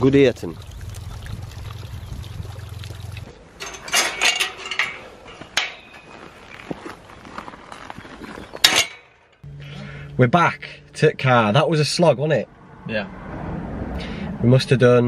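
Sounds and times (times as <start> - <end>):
water trickling in a stream: 0.0 - 4.0
footsteps on stony path: 3.6 - 9.4.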